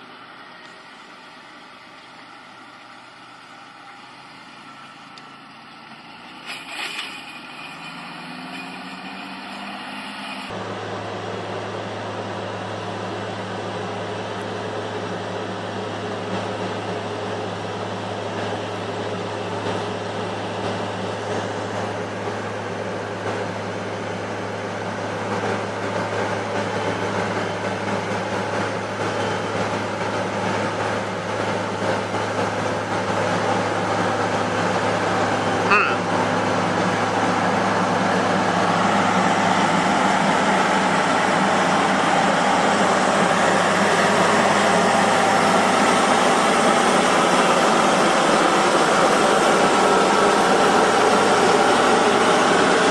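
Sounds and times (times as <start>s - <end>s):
tractor diesel engines running: 0.0s - 52.9s
engine knock: 16.2s - 52.9s.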